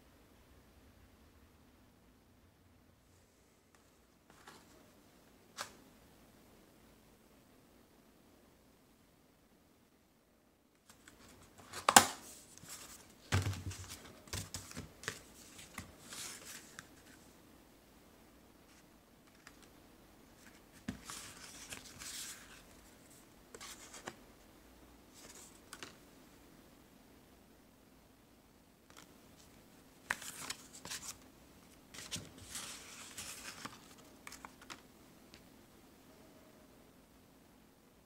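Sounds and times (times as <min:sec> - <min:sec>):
paper rustling: 0:20.4 - 0:24.2, 0:28.9 - 0:31.2, 0:31.9 - 0:34.8.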